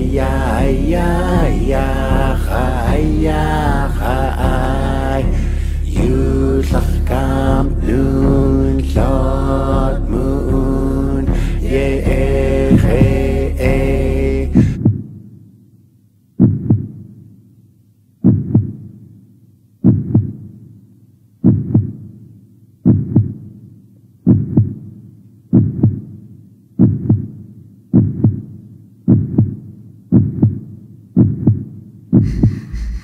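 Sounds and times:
low heartbeat-like double thump: 0:00.6 - 0:15.2, 0:16.4 - 0:17.0, 0:18.2 - 0:18.9, 0:19.8 - 0:20.5, 0:21.4 - 0:22.0, 0:22.8 - 0:23.4, 0:24.3 - 0:24.9, 0:25.5 - 0:26.1, 0:26.8 - 0:28.5, 0:29.1 - 0:33.0.

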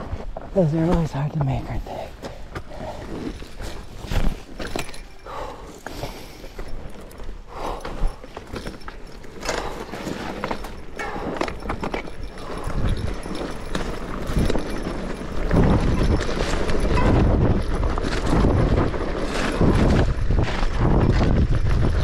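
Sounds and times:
mountain bike rattling on dirt trail: 0:02.1 - 0:22.0.

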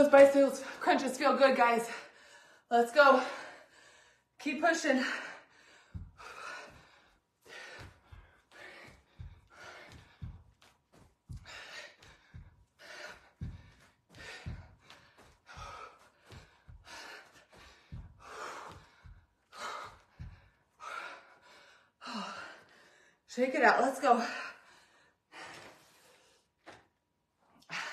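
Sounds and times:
woman breathing hard: 0:01.8 - 0:23.3, 0:24.2 - 0:26.5
feet thudding on carpet: 0:05.7 - 0:20.6.

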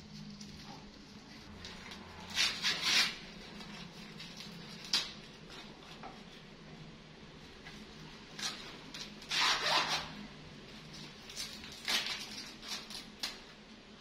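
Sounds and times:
corn husk tearing: 0:11.2 - 0:13.4.

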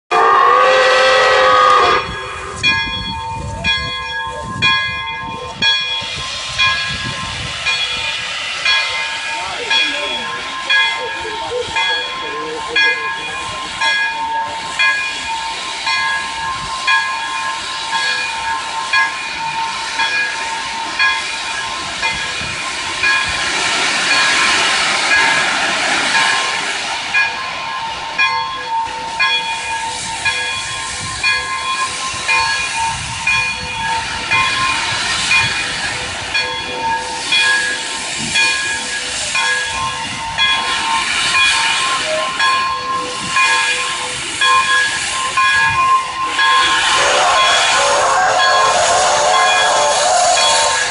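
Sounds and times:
steam locomotive hissing: 0:00.2 - 0:50.9.

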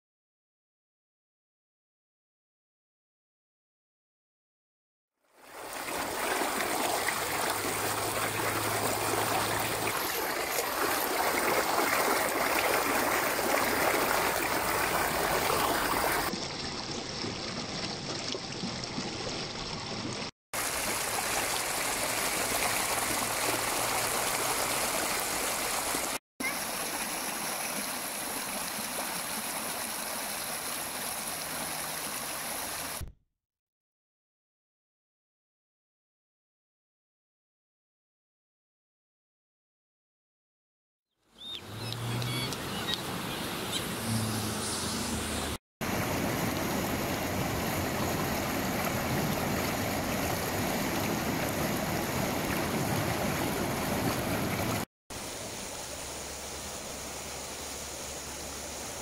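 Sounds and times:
water rushing over stones: 0:05.4 - 0:33.1, 0:45.8 - 0:57.0.

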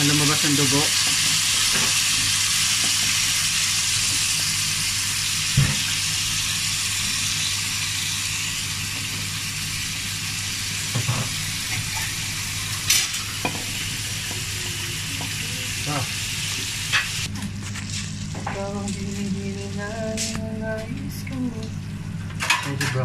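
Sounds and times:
chicken sizzling in hot oil: 0:00.0 - 0:18.3.

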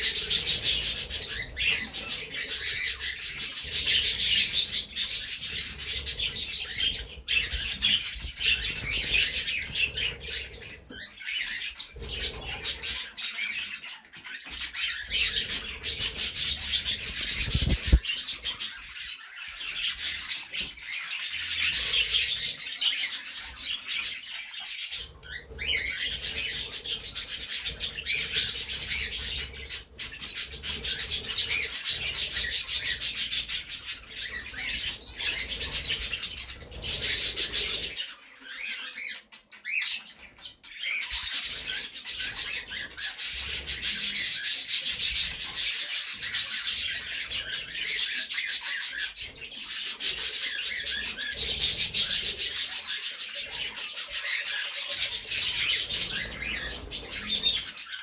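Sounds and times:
budgerigars chattering: 0:00.0 - 0:58.0.

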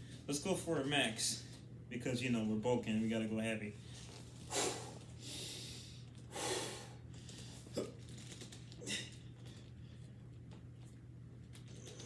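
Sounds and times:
man breathing hard: 0:04.5 - 0:07.7.

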